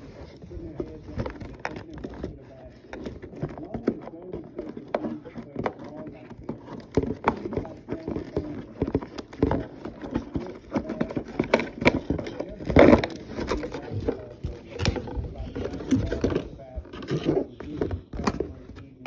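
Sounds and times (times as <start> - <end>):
cardboard box rustling and scraping: 0.0 - 19.0.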